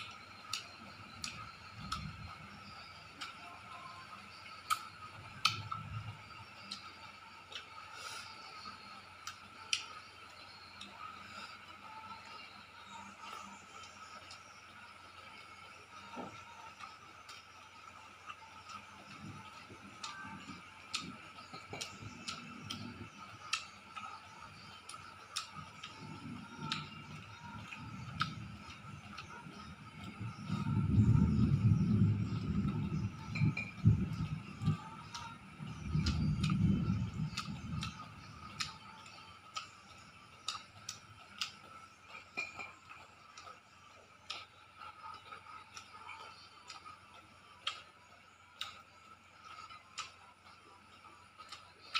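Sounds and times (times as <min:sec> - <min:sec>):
faint high hum: 0:00.0 - 0:51.9
soft chewing: 0:06.5 - 0:51.9
chewing smacks: 0:49.5 - 0:50.6.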